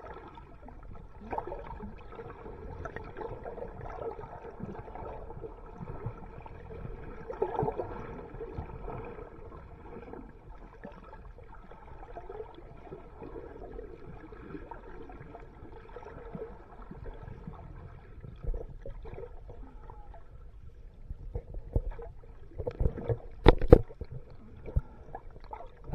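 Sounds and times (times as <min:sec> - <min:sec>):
muffled underwater water noise: 0:00.0 - 0:25.9.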